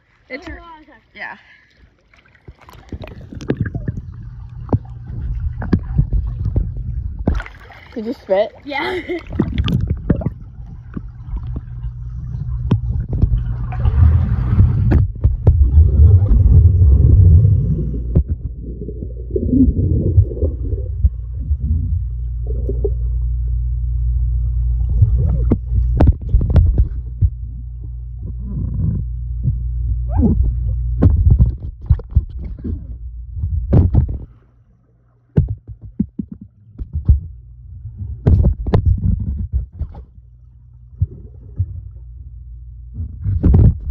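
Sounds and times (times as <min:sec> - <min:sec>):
water sloshing: 0:00.0 - 0:23.4
underwater low rumble: 0:00.0 - 0:43.9
sharp underwater knocks and clicks: 0:02.5 - 0:07.6, 0:09.3 - 0:16.6, 0:18.0 - 0:18.6, 0:24.9 - 0:29.6, 0:30.4 - 0:34.4, 0:35.3 - 0:37.4, 0:38.1 - 0:40.2, 0:42.9 - 0:43.9.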